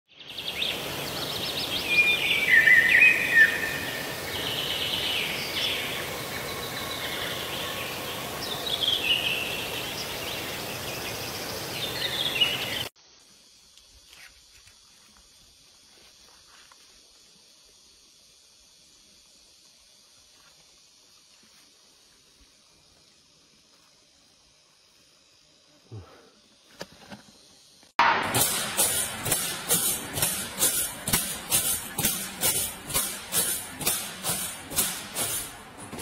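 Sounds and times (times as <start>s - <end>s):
noisy outdoor background: 0.1s - 36.0s
birds calling: 0.2s - 12.9s.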